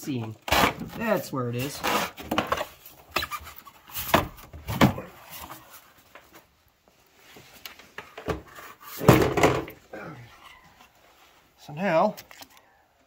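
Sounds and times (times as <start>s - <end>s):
plastic part knocks and clunks: 8.2s - 9.8s.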